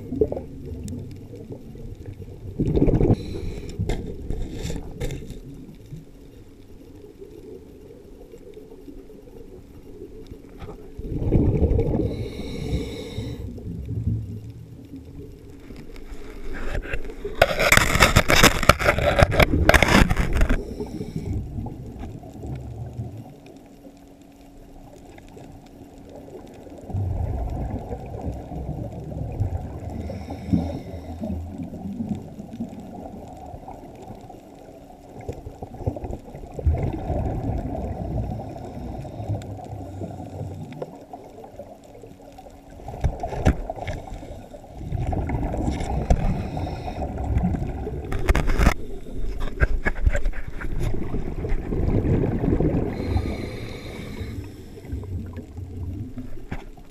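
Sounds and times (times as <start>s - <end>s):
underwater exhaled bubbles: 0.0s - 56.9s
scuba regulator breathing: 3.0s - 5.0s, 11.8s - 13.6s, 19.8s - 21.5s, 29.9s - 31.6s, 38.3s - 40.9s, 43.7s - 45.0s, 45.6s - 47.5s, 48.2s - 50.5s, 52.8s - 55.4s.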